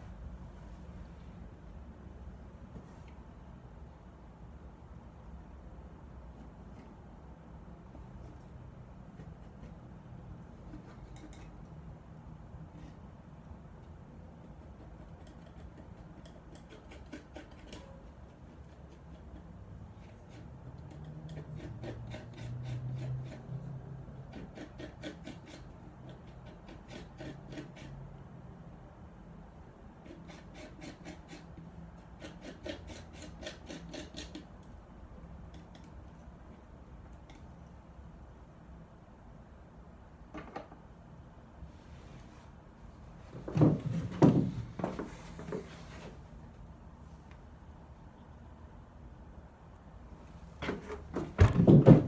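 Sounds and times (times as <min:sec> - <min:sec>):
dull knocks and handling noises: 0:43.3 - 0:46.2, 0:50.6 - 0:52.0.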